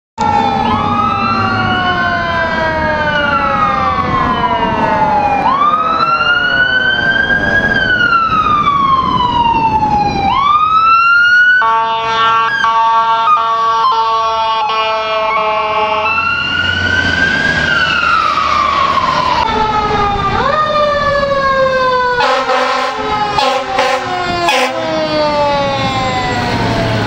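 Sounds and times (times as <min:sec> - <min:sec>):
truck engine: 0:00.2 - 0:27.0
air horns chord: 0:22.2 - 0:25.0.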